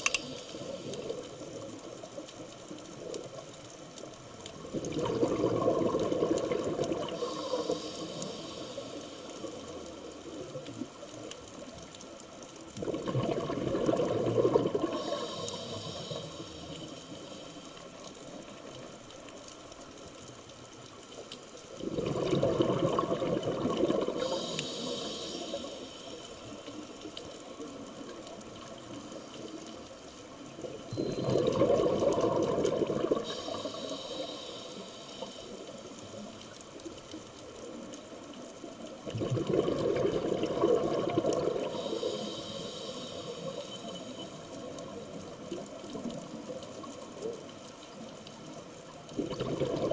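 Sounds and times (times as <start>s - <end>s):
steady underwater background noise: 0.0s - 49.9s
underwater breath bubbles: 4.6s - 9.6s, 12.8s - 17.2s, 21.8s - 26.3s, 31.0s - 35.8s, 39.0s - 44.4s, 49.0s - 49.9s.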